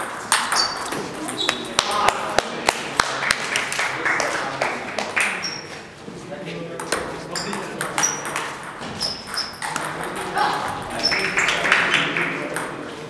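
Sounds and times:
table tennis ball bouncing: 0.0s - 2.5s, 6.8s - 12.8s
voices in a hall: 0.0s - 13.0s.

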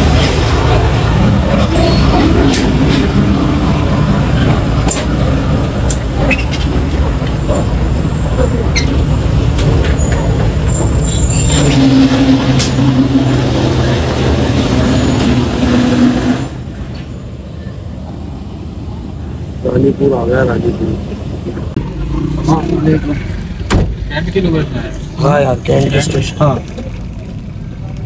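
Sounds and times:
engine drone: 0.0s - 28.0s
train rumble: 0.0s - 28.0s.

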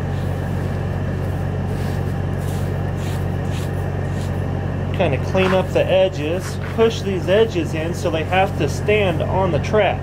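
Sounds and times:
grain rustling by hand: 0.0s - 4.4s
truck engine idling: 0.0s - 10.0s.

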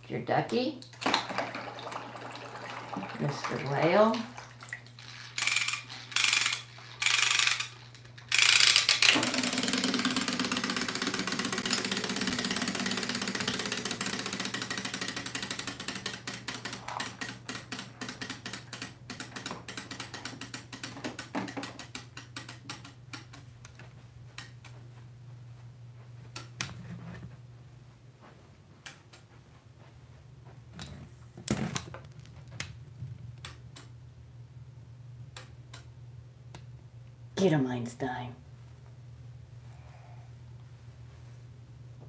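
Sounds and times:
clockwork spring motor whirring: 5.1s - 20.9s
ratchet clicking of winding: 5.3s - 23.4s.

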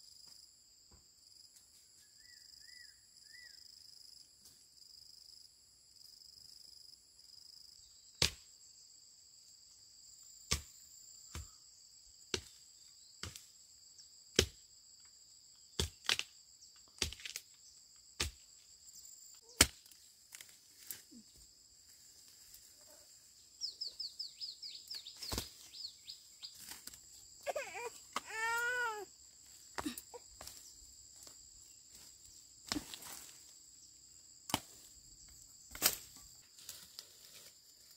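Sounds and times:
insects droning: 0.0s - 37.9s
sharp chopping strikes: 8.2s - 8.4s, 10.5s - 10.7s, 19.5s - 20.0s.

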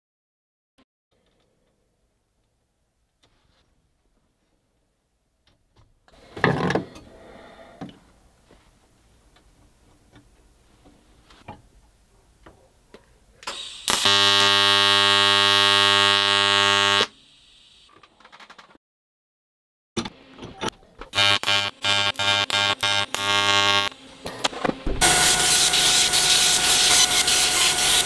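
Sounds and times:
welding arc buzzing: 13.5s - 17.9s, 21.1s - 28.0s.

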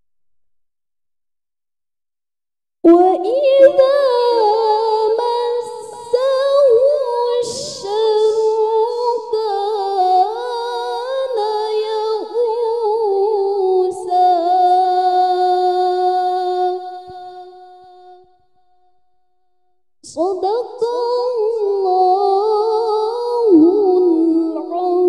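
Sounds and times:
woman reciting melodically: 2.9s - 17.6s, 20.1s - 25.0s.

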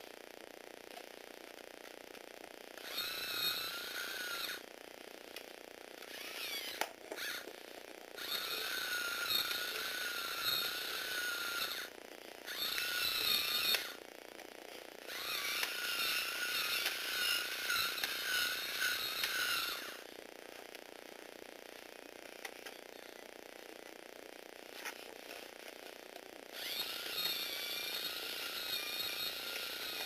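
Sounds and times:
small electric motor whining: 2.7s - 4.8s, 6.0s - 14.1s, 15.0s - 20.2s, 24.7s - 30.0s.

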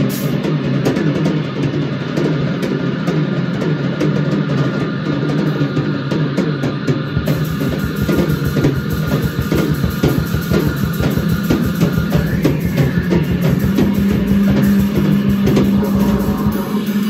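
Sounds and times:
drum kit fast strokes: 0.0s - 17.0s
held low electric bass note: 10.9s - 17.0s.

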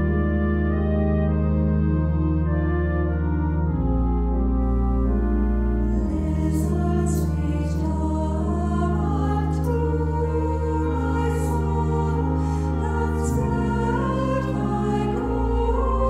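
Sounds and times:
organ playing sustained chords: 0.0s - 16.0s
small choir singing: 5.7s - 16.0s.

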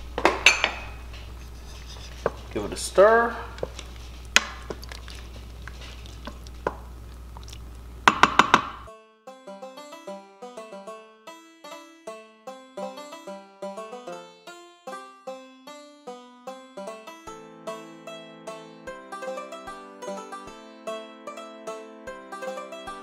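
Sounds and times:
wooden spoon stirring stew: 1.2s - 8.3s
spoon knocking on metal pot: 8.1s - 8.9s
plucked banjo-like music: 8.9s - 23.0s.

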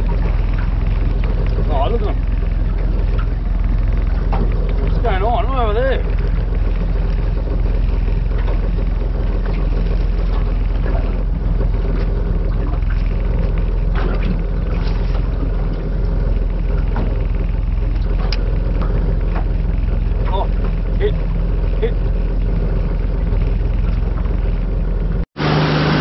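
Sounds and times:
outboard motor idling: 0.0s - 26.0s
water and wind noise: 0.0s - 26.0s.

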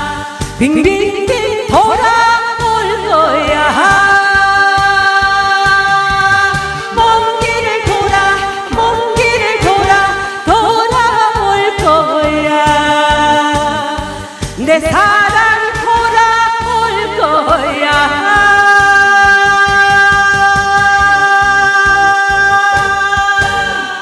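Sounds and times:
backing music with steady beat: 0.0s - 24.0s
woman singing into a microphone: 0.0s - 24.0s.

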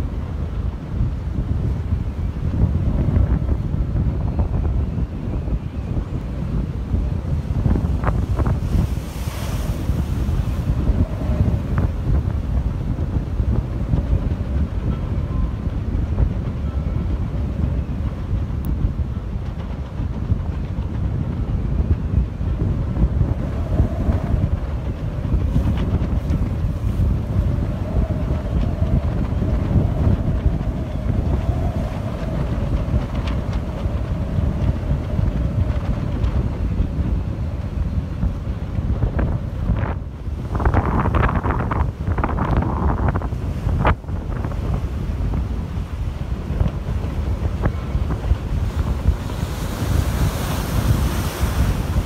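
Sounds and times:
wind buffeting microphone: 0.0s - 52.0s.

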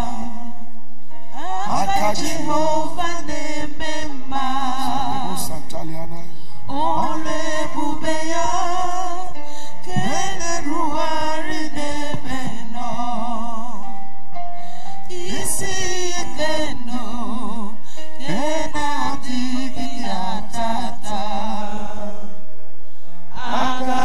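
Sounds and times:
instrumental backing music: 0.0s - 24.0s
person singing with vibrato: 0.0s - 24.0s.

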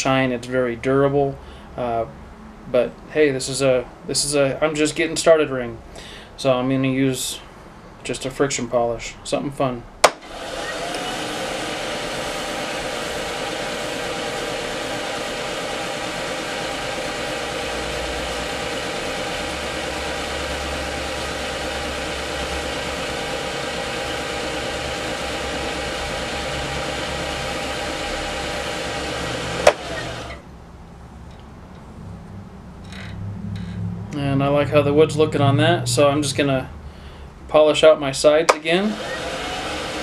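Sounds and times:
sharp click: 10.0s - 10.3s
lathe motor whine: 10.2s - 30.4s, 38.8s - 40.0s.

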